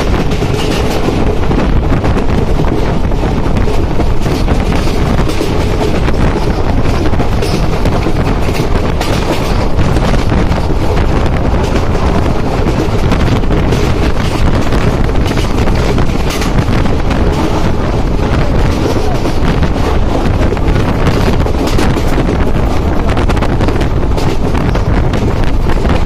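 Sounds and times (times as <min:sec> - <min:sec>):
train running noise: 0:00.0 - 0:26.0
wind buffeting microphone: 0:00.0 - 0:26.0.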